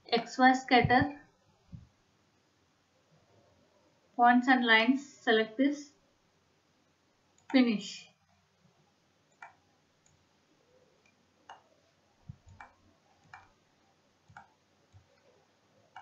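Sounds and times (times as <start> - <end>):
computer mouse clicks: 7.4 - 7.6, 9.3 - 10.2, 11.0 - 11.7, 12.3 - 13.6, 14.3 - 16.0.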